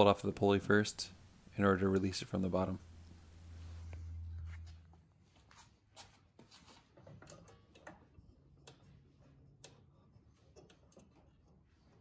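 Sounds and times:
low hum: 0:02.7 - 0:05.4.

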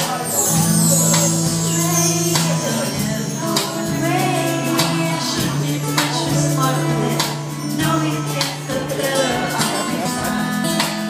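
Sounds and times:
strummed acoustic guitar: 0:00.0 - 0:11.0
woman singing into a microphone: 0:00.0 - 0:11.0.

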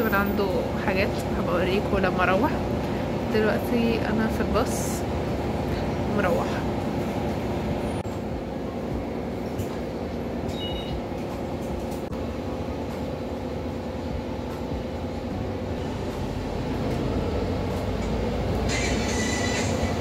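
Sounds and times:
bus engine and road rumble: 0:00.0 - 0:20.0
high two-tone beep: 0:10.5 - 0:11.0.

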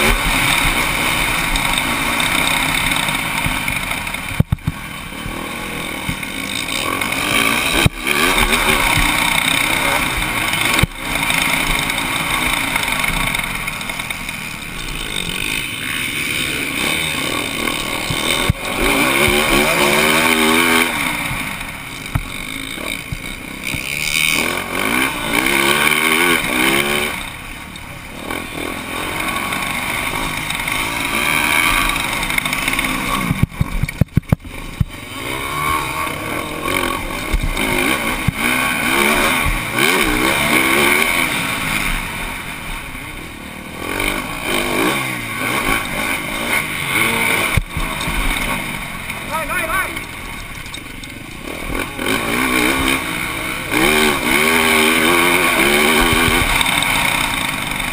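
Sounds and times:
motorcycle engine revving: 0:00.0 - 0:57.9.

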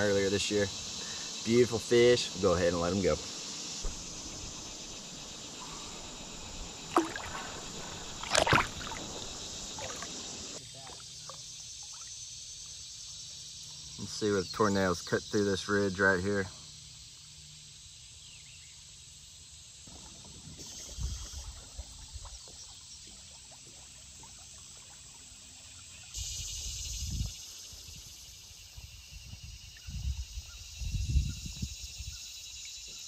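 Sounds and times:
water trickling: 0:00.0 - 0:14.2
insects chirring: 0:00.0 - 0:33.0
paddle knocks and splashes: 0:03.8 - 0:04.7, 0:06.8 - 0:11.4.

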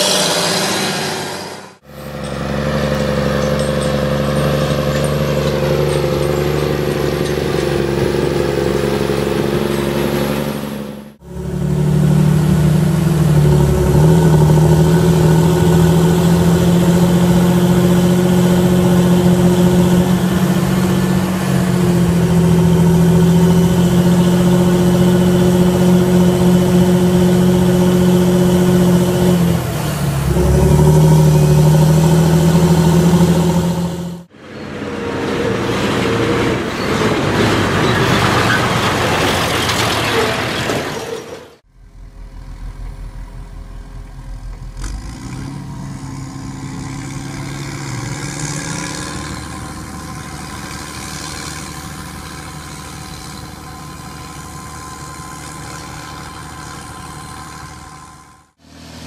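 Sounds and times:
even rushing noise: 0:00.0 - 0:03.7
tractor diesel engine running: 0:00.0 - 0:59.0.

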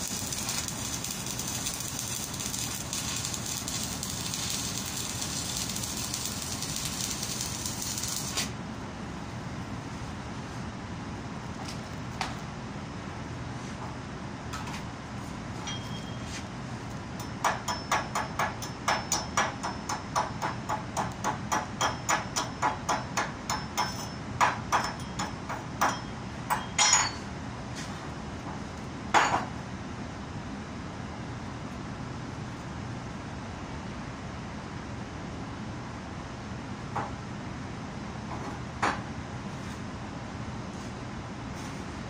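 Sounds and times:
hammer striking metal: 0:17.2 - 0:27.3.

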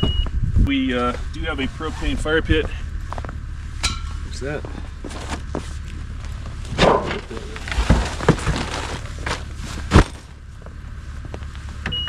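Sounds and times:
wind rumble on microphone: 0:00.0 - 0:03.2
bags thumping down: 0:06.7 - 0:10.4.

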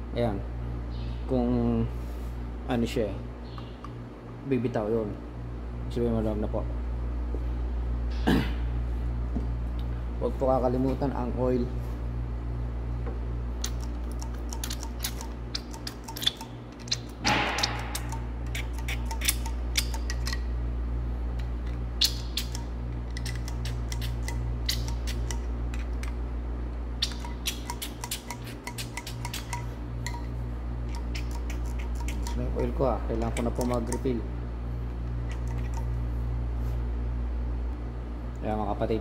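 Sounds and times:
steady low hum: 0:00.0 - 0:39.0
oil can pump clicking: 0:33.2 - 0:34.1.

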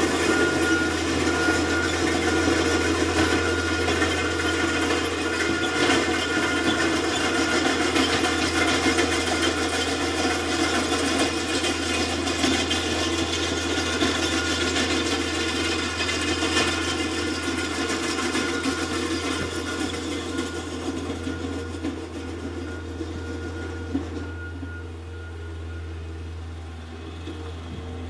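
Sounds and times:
loader engine running: 0:00.0 - 0:28.0.

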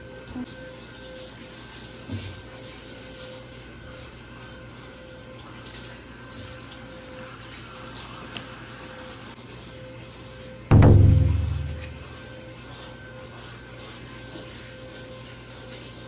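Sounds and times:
water spraying from shower head: 0:08.1 - 0:16.0
soft bump: 0:10.7 - 0:12.1.

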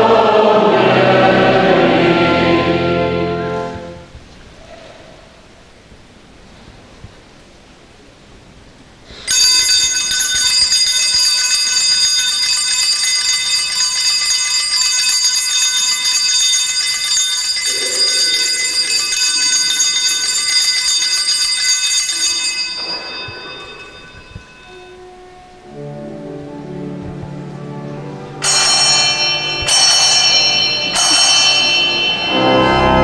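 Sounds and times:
small bells jangling: 0:09.2 - 0:25.1, 0:28.4 - 0:33.0.

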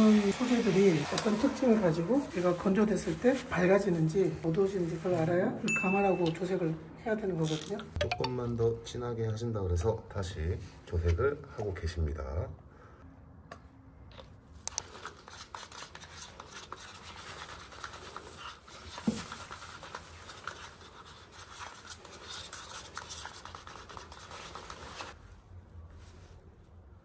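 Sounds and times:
wooden stick stirring paint: 0:14.1 - 0:25.2.

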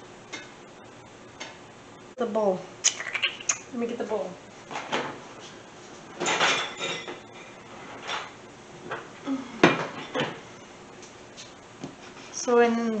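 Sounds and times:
dishes clattering: 0:06.2 - 0:08.3, 0:09.6 - 0:10.4.

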